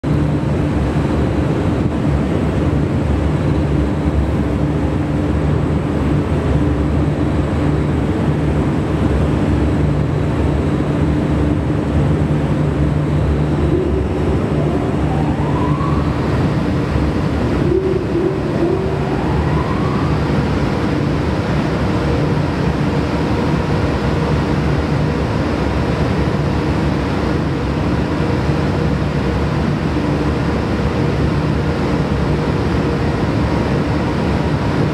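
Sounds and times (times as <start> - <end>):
electric locomotive humming: 0.1 - 34.9
rising whines: 12.7 - 21.4.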